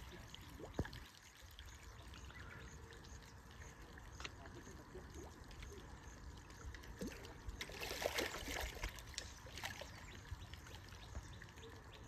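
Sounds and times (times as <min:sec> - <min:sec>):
fish splashing in shallow water: 0:00.0 - 0:12.0
water lapping: 0:06.6 - 0:11.3.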